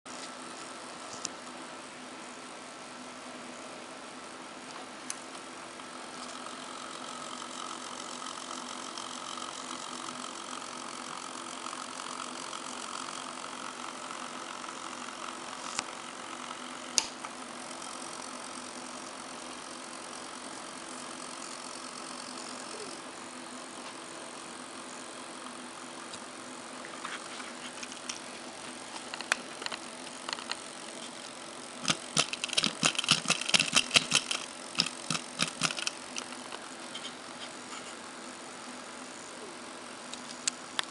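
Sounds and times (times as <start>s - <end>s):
steady hum with pitched tones: 0.1s - 40.9s
sharp clicks and rattles: 27.7s - 28.3s, 28.9s - 37.1s.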